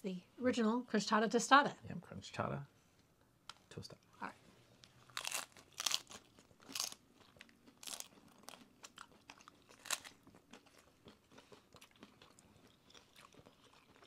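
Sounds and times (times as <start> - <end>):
crisp shells crunching when bitten: 5.1 - 11.2.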